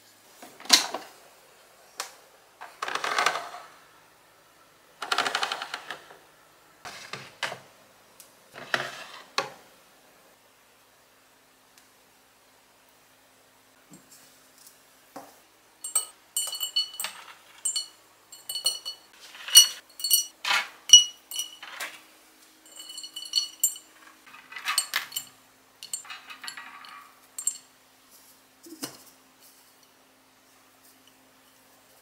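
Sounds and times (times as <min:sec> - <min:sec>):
strips clinking into glass bottle: 0:15.8 - 0:21.9, 0:22.7 - 0:27.7.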